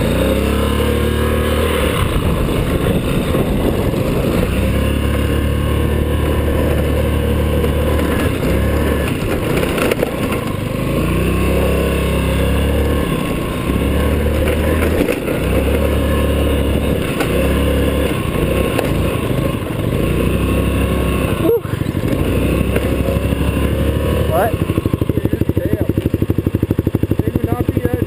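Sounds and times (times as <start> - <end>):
scooter engine revving: 0.0 - 28.0.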